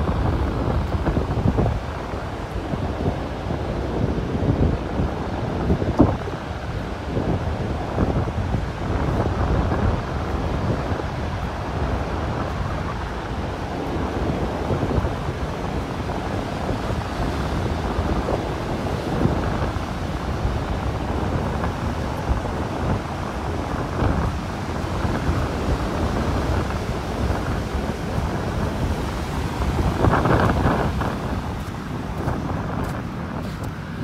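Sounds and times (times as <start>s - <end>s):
wind buffeting microphone: 0.0s - 34.0s
surf breaking on shingle beach: 17.5s - 34.0s.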